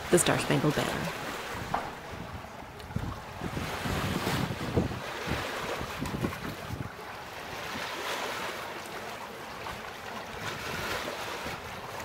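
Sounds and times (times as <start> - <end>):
wind gusting on microphone: 0.0 - 8.0
water rushing along hulls: 0.0 - 12.0.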